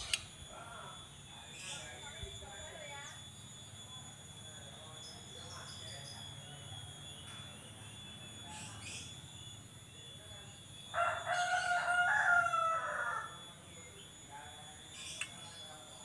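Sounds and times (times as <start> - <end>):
rooster crowing: 10.9 - 13.5.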